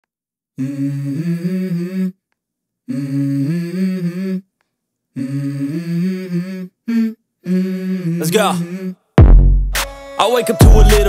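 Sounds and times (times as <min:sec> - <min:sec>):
person humming a melody: 0:00.6 - 0:02.2, 0:02.9 - 0:04.5, 0:05.2 - 0:09.0, 0:10.5 - 0:11.0.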